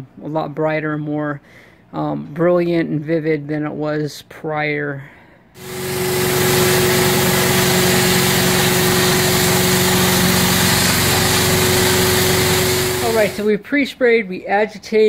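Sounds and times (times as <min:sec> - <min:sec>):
extraction wand pulling water: 0:05.6 - 0:13.5
vacuum motors running: 0:05.6 - 0:13.5.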